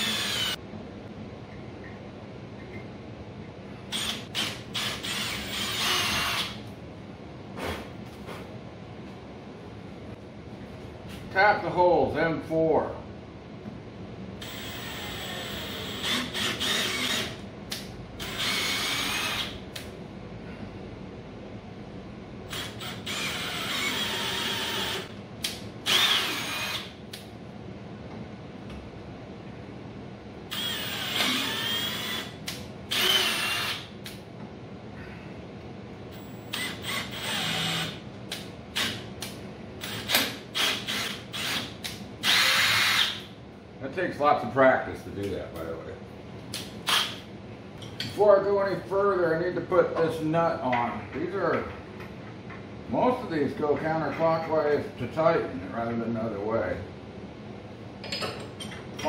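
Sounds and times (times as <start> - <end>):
cordless drill motor whine: 0.0 - 0.6, 14.4 - 17.4, 18.2 - 19.6, 22.5 - 25.1, 25.8 - 26.9, 30.5 - 32.3, 32.9 - 33.9, 36.2 - 38.0.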